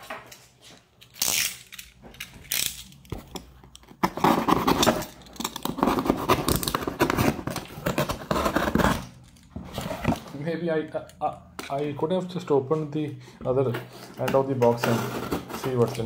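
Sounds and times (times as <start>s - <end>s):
knife cutting cardboard: 4.0s - 9.1s.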